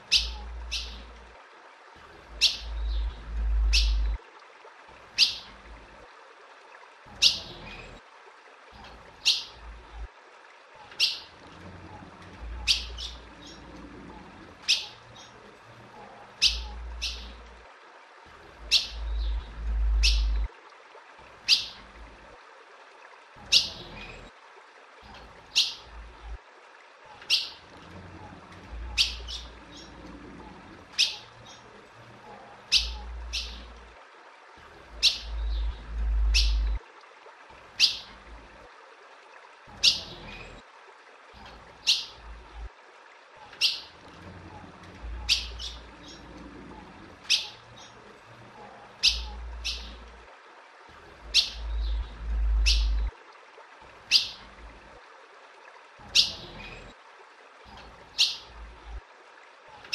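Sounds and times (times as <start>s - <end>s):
low rumble: 19.0s - 20.5s, 35.3s - 36.8s.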